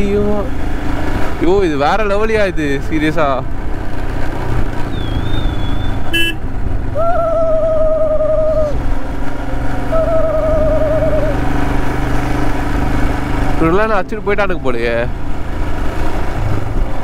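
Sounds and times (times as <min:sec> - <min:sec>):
motorcycle engine running: 0:00.0 - 0:17.0
thin whistle-like tone: 0:04.9 - 0:06.0
person singing wavering notes: 0:09.9 - 0:11.4.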